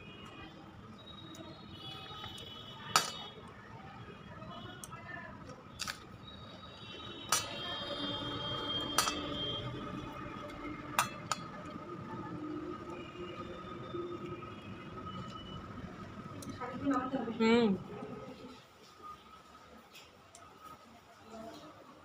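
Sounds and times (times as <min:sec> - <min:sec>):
dishes clinking: 0:02.9 - 0:03.3, 0:07.3 - 0:07.7, 0:08.8 - 0:09.4, 0:10.9 - 0:11.7.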